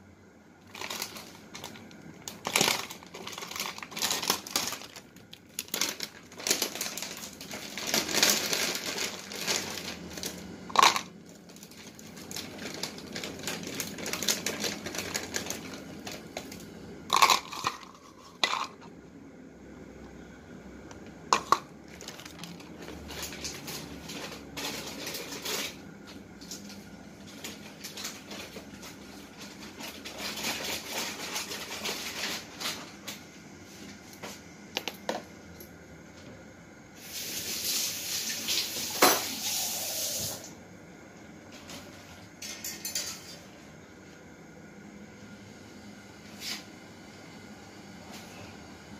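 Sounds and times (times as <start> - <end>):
dishes and utensils clinking: 39.0 - 39.5, 42.4 - 43.4.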